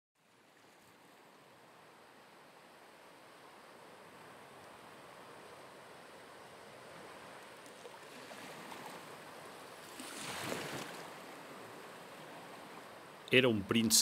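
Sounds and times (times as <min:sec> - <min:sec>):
sea surf washing over rocks: 0:08.0 - 0:12.7.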